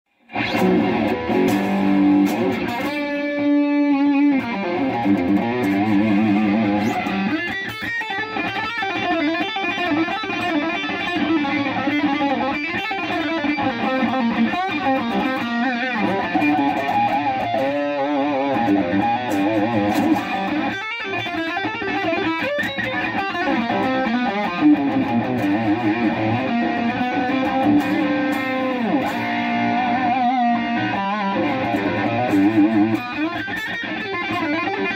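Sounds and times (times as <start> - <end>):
electric guitar notes and chords: 0.2 - 34.9.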